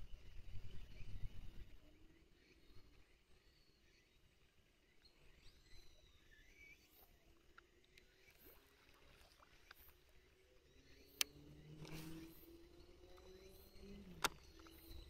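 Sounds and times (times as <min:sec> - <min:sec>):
sharp click: 0:14.1 - 0:15.0.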